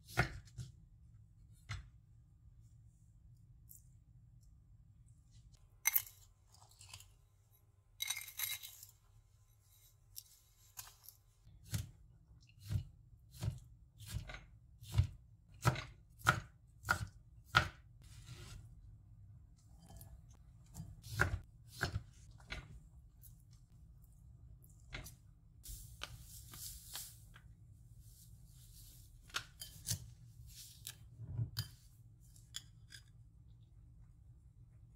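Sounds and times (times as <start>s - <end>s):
knife chopping on cutting board: 12.6s - 17.8s, 20.7s - 22.2s.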